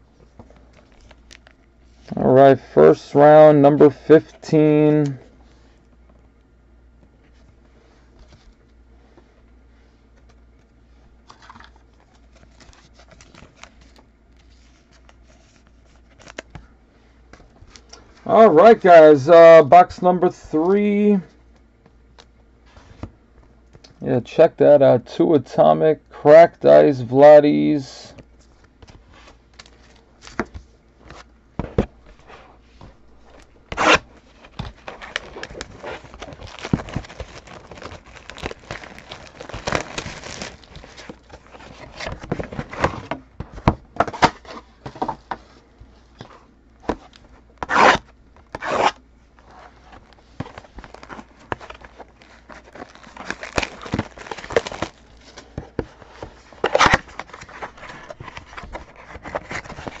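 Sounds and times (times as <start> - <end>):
cards sliding and rubbing: 28.8 - 37.9, 47.6 - 54.6
wrappers tearing and crinkling: 33.7 - 42.7, 50.6 - 55.5, 56.6 - 60.0.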